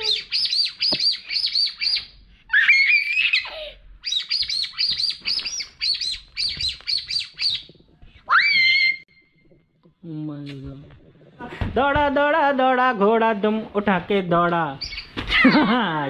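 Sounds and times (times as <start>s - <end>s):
rapid bird-like chirping: 0.0s - 8.0s, 14.8s - 15.5s.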